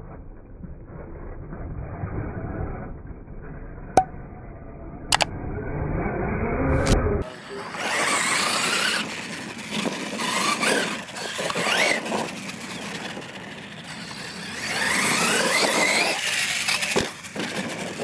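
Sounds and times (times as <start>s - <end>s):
rc truck electric motor whining: 5.5s - 18.0s.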